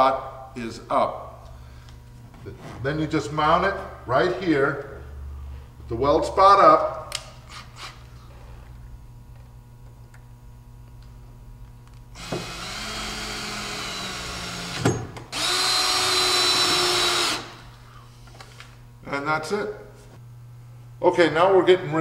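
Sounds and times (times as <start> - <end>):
cordless drill driving screw: 12.2 - 17.7.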